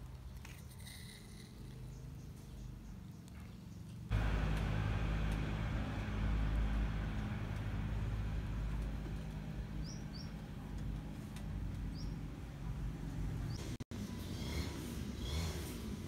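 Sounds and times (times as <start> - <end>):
engine droning: 4.0 - 16.0
bird chirps: 9.8 - 10.4, 11.9 - 12.2.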